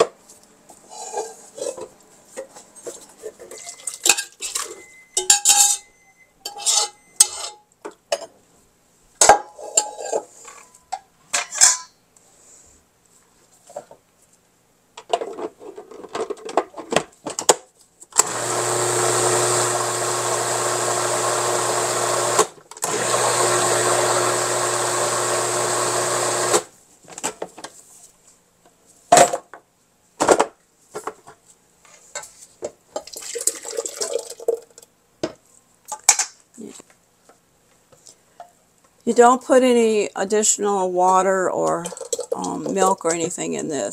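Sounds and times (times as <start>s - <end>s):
bowls and utensils clinking: 2.5s - 7.6s, 41.6s - 43.3s
food processor running: 18.2s - 26.7s.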